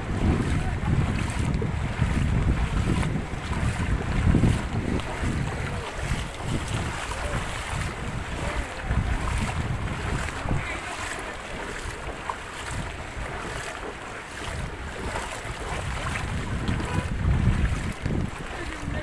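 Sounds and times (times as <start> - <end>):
floodwater running: 0.0 - 19.0
wind buffeting microphone: 0.0 - 19.0.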